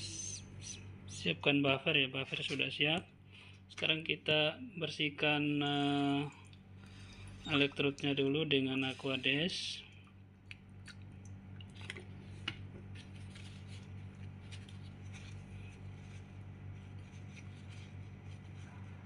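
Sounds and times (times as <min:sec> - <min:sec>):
steady low hum: 0:00.0 - 0:19.0
tissue rustling on glass: 0:12.2 - 0:19.0.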